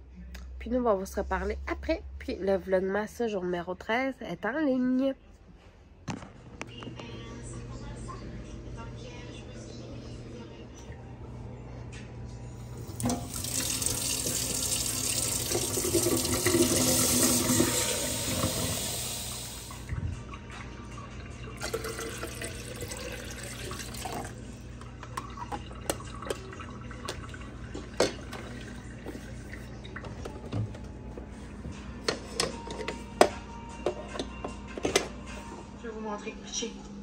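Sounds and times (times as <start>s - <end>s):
water pouring into reservoir: 12.9s - 19.8s, 21.5s - 24.4s
tap running into container: 12.9s - 20.0s, 21.6s - 29.3s.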